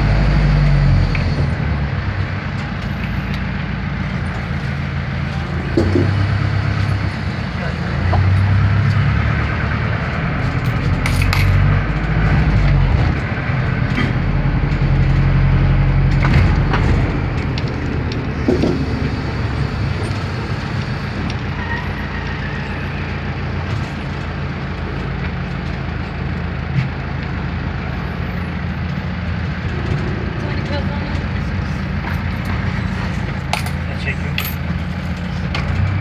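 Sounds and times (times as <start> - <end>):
minibus engine running: 0.0 - 36.0
vehicle body rattling: 10.0 - 22.0.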